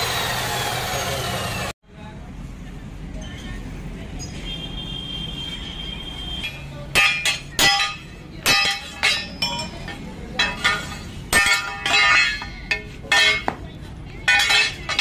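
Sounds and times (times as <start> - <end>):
hammer clanking on steel: 6.9 - 15.0.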